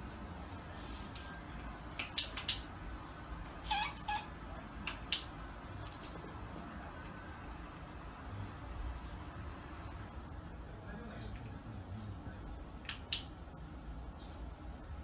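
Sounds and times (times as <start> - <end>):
cat meowing: 3.5 - 4.3.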